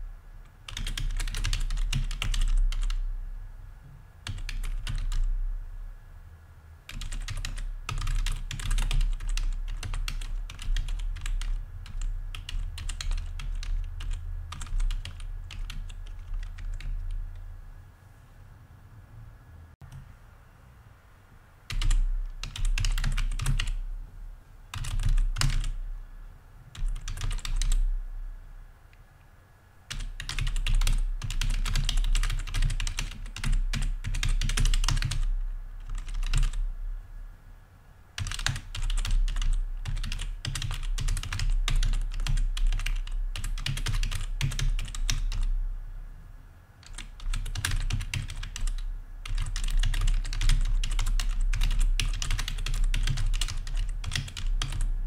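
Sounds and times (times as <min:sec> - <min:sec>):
typing on computer keyboard: 0:00.7 - 0:03.0, 0:04.2 - 0:05.3, 0:06.9 - 0:17.4, 0:21.7 - 0:23.8, 0:24.7 - 0:25.8, 0:26.8 - 0:27.8, 0:29.9 - 0:36.6, 0:38.2 - 0:45.5, 0:46.8 - 0:54.9.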